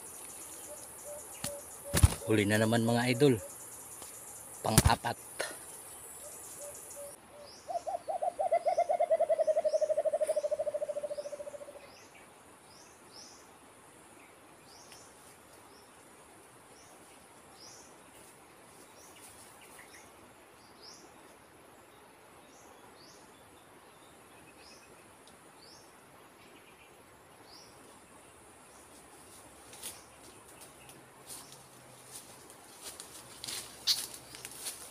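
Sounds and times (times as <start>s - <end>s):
dove hooting: 0.0s - 3.6s, 6.2s - 11.8s
high insect hiss: 0.0s - 8.0s, 9.0s - 34.9s.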